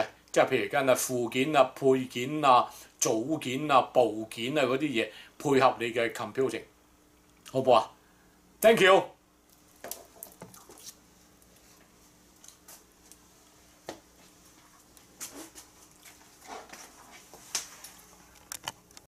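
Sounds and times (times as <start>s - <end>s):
clicks taps and rustles: 9.5s - 13.2s.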